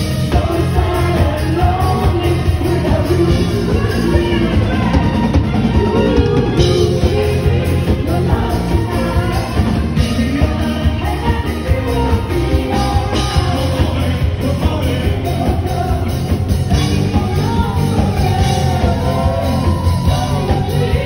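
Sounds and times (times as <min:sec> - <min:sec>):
bass beat: 0:00.0 - 0:21.0
live band playing upbeat music: 0:00.0 - 0:21.0
person singing: 0:00.0 - 0:21.0.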